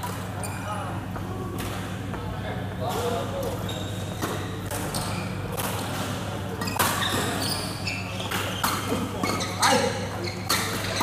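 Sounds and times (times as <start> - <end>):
shoes squeaking on court: 0.3 - 0.8, 3.4 - 6.0, 6.6 - 11.0.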